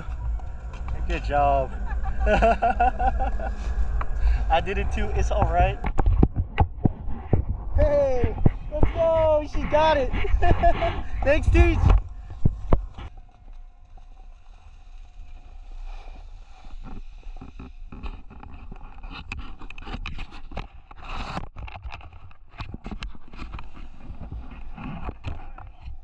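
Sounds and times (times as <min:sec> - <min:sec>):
wind rumble on microphone: 0:00.0 - 0:13.3
crunching and scraping on snow: 0:00.0 - 0:26.0.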